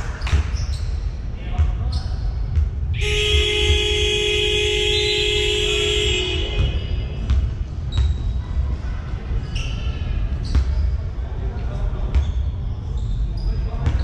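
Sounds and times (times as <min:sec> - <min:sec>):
low rumble of hall: 0:00.0 - 0:14.0
basketball bouncing: 0:00.1 - 0:08.4.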